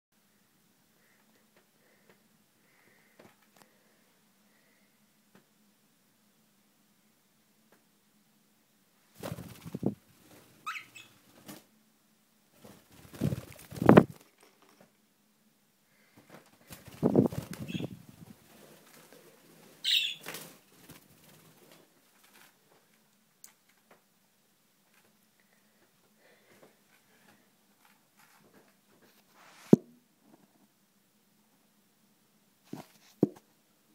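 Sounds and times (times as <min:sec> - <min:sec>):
bird wings flapping: 0:09.2 - 0:10.5, 0:12.6 - 0:14.8, 0:16.3 - 0:22.6
bird chirps: 0:10.6 - 0:11.2, 0:17.6 - 0:18.0, 0:19.8 - 0:20.3.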